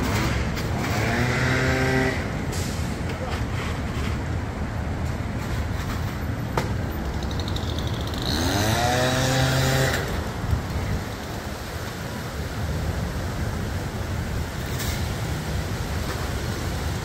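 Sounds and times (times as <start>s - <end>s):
vehicle engine revving: 0.0s - 2.4s, 8.0s - 10.2s
street traffic rumble: 0.0s - 17.0s.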